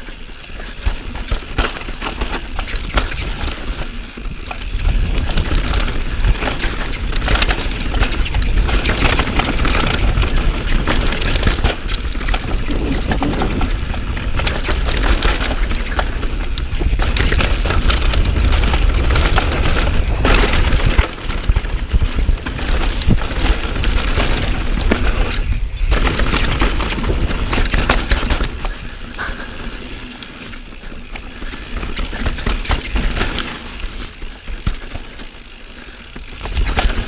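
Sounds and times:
bike clicking and clattering: 0:00.0 - 0:37.0
bike tyres rolling on dirt trail: 0:00.0 - 0:37.0
wind over camera microphone: 0:04.7 - 0:28.7.

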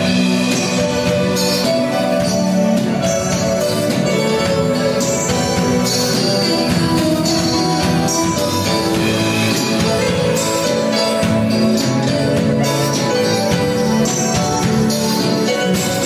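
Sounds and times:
band music: 0:00.0 - 0:16.0.

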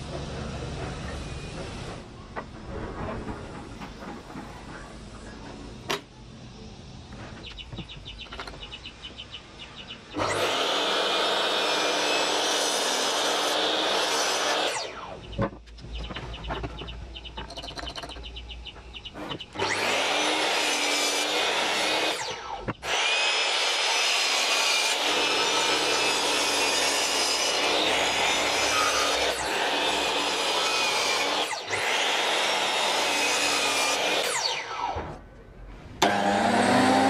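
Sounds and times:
miter saw cutting wood: 0:10.1 - 0:15.6, 0:19.1 - 0:35.1, 0:36.0 - 0:37.0.

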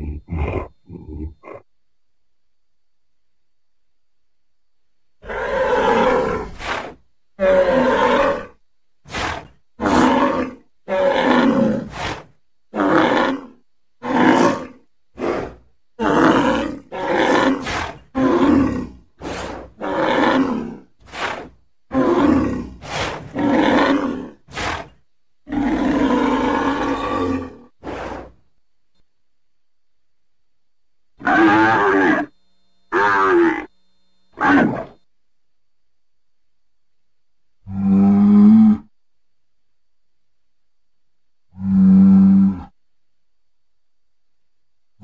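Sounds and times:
bull bellowing: 0:00.0 - 0:01.7, 0:05.2 - 0:28.4, 0:31.2 - 0:35.0, 0:37.6 - 0:38.9, 0:41.5 - 0:42.8.

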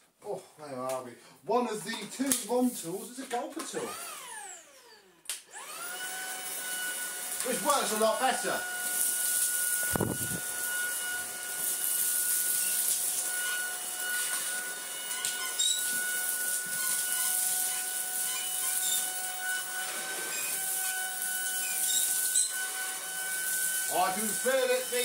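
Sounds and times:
vacuum cleaner motor whine: 0:03.7 - 0:25.0.

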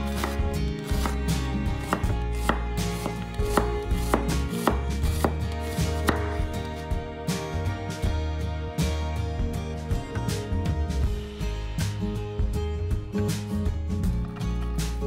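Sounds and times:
knife slicing onion on wooden board: 0:00.0 - 0:06.8.

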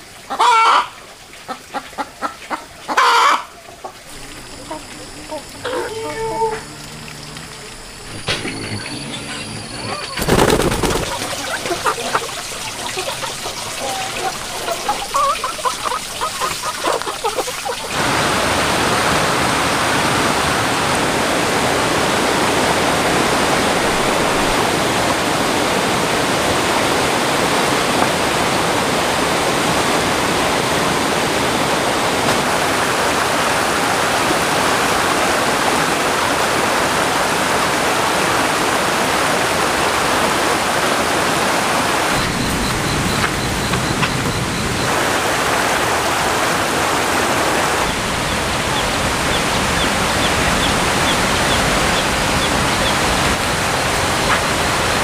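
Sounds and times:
water rushing: 0:00.0 - 0:55.0
faint birdsong: 0:02.1 - 0:17.9, 0:47.8 - 0:53.4
dove wings clapping: 0:10.0 - 0:17.9, 0:42.2 - 0:44.6.

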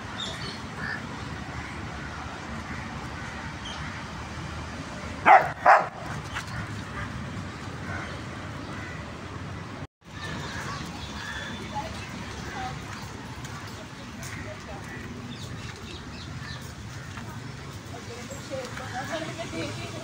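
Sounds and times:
dog barking: 0:05.2 - 0:06.0.

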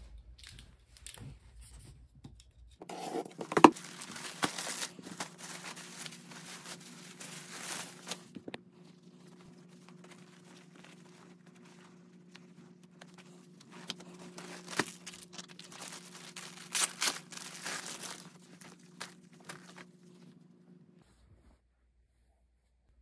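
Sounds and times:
plastic bag crinkling and tearing: 0:03.3 - 0:08.5, 0:09.5 - 0:19.9.

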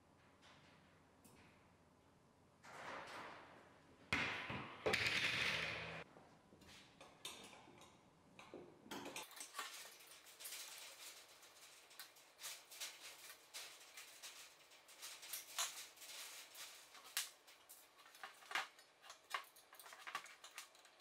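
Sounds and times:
wire grille rattling and scraping: 0:08.9 - 0:21.0.

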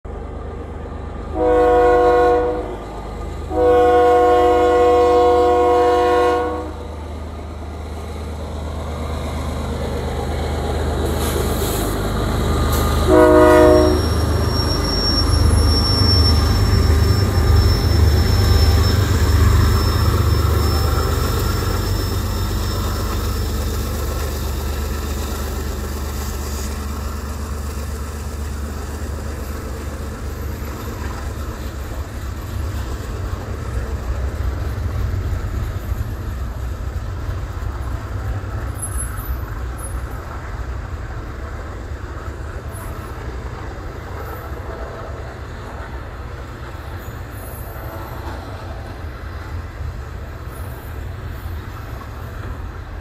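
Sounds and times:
diesel engines rumbling: 0:00.1 - 0:46.6
locomotive horn blasts: 0:01.3 - 0:02.8, 0:03.5 - 0:06.8, 0:13.1 - 0:14.2.

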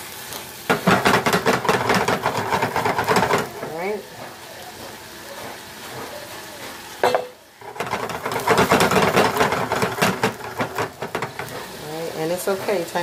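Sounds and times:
broccoli sizzling in a frying pan: 0:00.0 - 0:13.0
utensil scraping a pan: 0:00.7 - 0:04.3, 0:07.6 - 0:13.0.

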